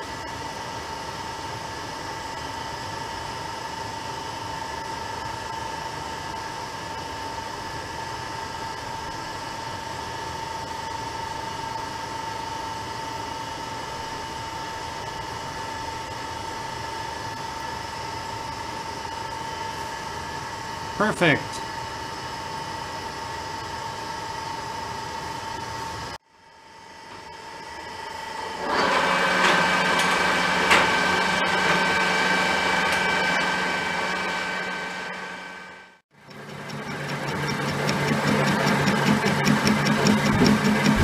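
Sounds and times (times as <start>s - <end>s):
machine hum with high whine: 0.0s - 41.0s.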